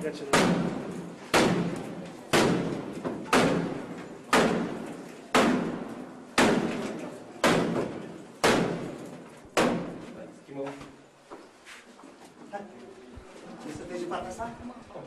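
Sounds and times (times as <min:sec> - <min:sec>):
door being struck hard: 0:00.3 - 0:09.0, 0:09.6 - 0:10.0.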